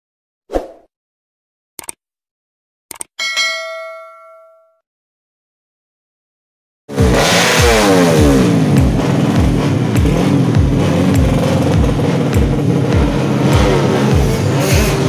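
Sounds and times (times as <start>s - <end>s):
held bass line: 6.9s - 15.0s
electronic dance music: 7.0s - 15.0s
thumping kick drum: 7.0s - 15.0s.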